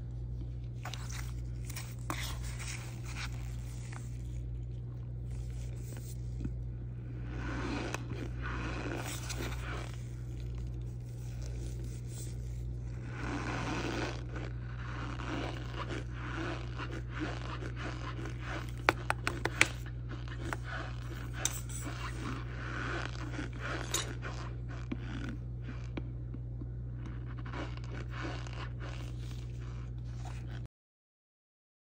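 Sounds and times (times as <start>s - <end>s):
plastic spoon scraping powder: 0.6s - 4.6s, 5.3s - 25.2s.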